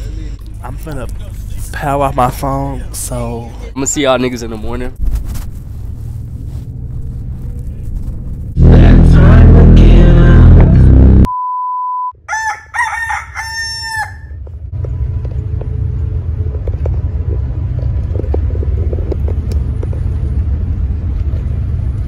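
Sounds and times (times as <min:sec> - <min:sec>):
bus rumble: 0:00.0 - 0:11.3, 0:12.5 - 0:22.0
loud sound: 0:08.5 - 0:11.3
short steady beep: 0:11.3 - 0:12.2
rooster crowing: 0:12.3 - 0:14.4.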